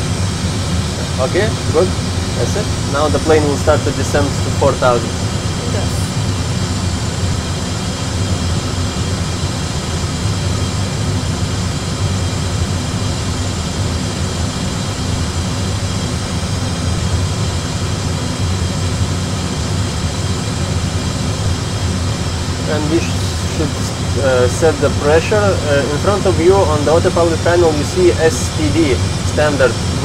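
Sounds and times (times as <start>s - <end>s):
aircraft cockpit engine rumble: 0.0s - 30.0s
faint steady tones: 18.6s - 30.0s.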